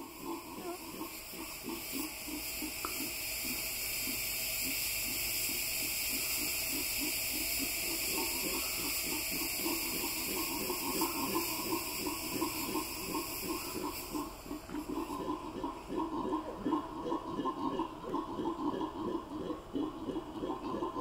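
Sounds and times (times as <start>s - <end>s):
howler monkeys roaring: 0.0s - 2.4s, 13.4s - 21.0s
steady high hiss: 0.0s - 21.0s.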